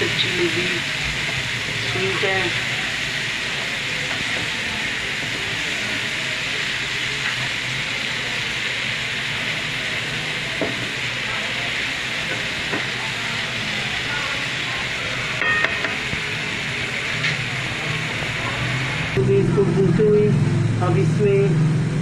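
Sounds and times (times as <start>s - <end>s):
apples sizzling in hot oil: 0.0s - 21.4s.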